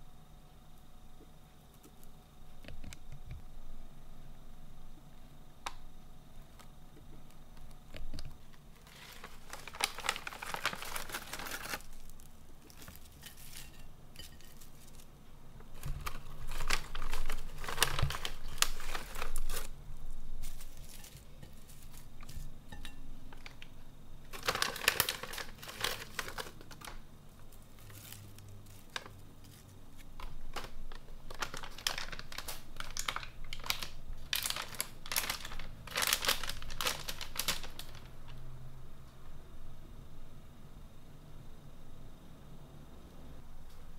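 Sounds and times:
snack bag crinkling: 0:07.6 - 0:15.1, 0:15.7 - 0:19.8, 0:20.4 - 0:22.5, 0:23.3 - 0:38.2.

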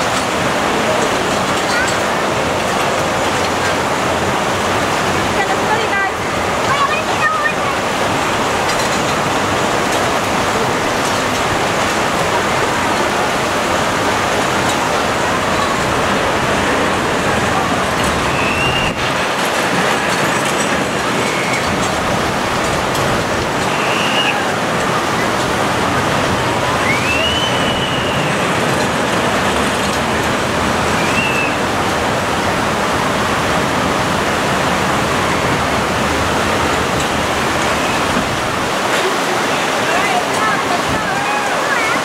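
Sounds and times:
roller coaster train rumbling on track: 0:00.0 - 0:42.0
high squeals: 0:23.6 - 0:25.3, 0:26.5 - 0:28.6, 0:30.9 - 0:31.6.

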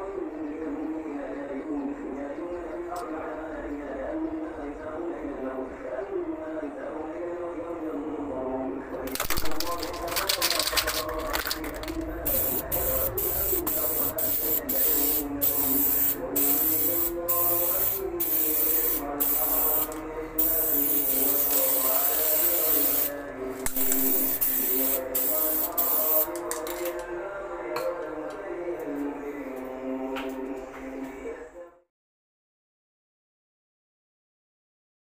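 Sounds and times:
aerosol can spraying: 0:09.1 - 0:23.1, 0:23.7 - 0:26.4.

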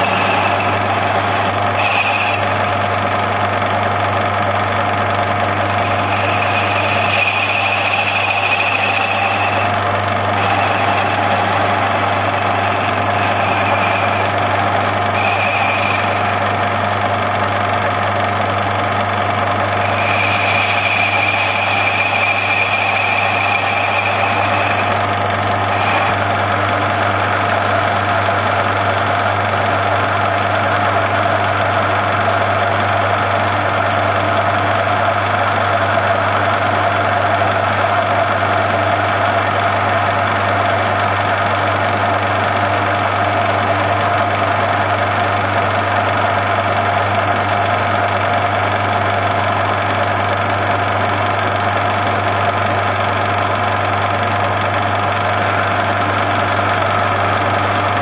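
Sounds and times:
metal lathe humming: 0:00.0 - 0:58.0
high-pitched whine: 0:10.3 - 0:16.5, 0:19.8 - 0:25.0.

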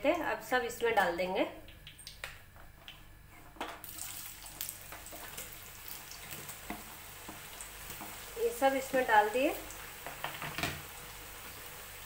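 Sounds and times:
oil crackling and popping: 0:03.8 - 0:08.4
potatoes sizzling in hot oil: 0:03.8 - 0:12.0.

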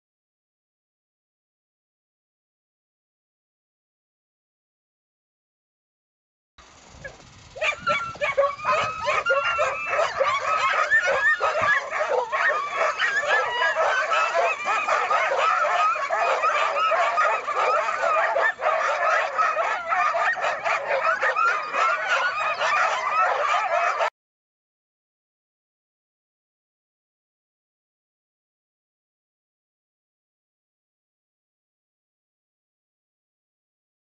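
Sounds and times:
dogs barking yelping and howling: 0:07.0 - 0:24.1.

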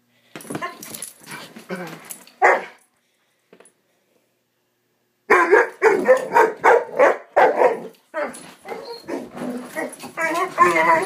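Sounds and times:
puppy barking: 0:02.4 - 0:02.8, 0:05.3 - 0:07.9.

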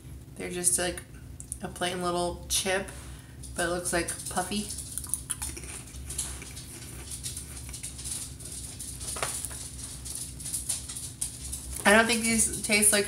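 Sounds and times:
person chewing crunchy chip: 0:04.8 - 0:08.6.

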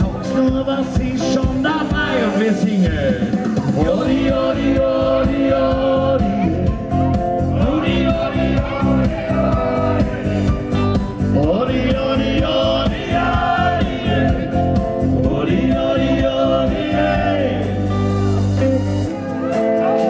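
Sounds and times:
electric guitar: 0:00.0 - 0:20.0
person singing: 0:00.0 - 0:20.0
steady drum beat: 0:00.0 - 0:20.0.

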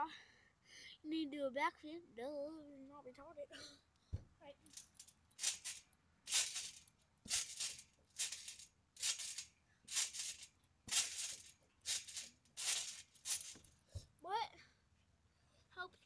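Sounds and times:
trampoline springs rattling: 0:04.6 - 0:13.8.

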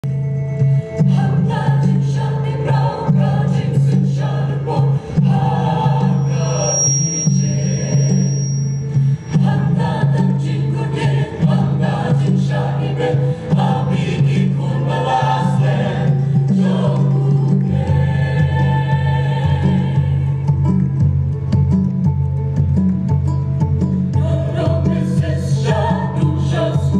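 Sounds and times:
mixed choir singing in harmony: 0:01.0 - 0:21.1, 0:24.1 - 0:26.9
singers breathing: 0:13.2 - 0:13.6.

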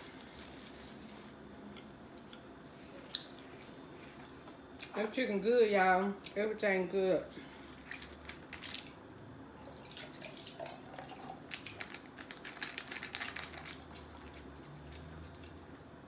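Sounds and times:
liquid pouring and dripping: 0:09.6 - 0:15.8.

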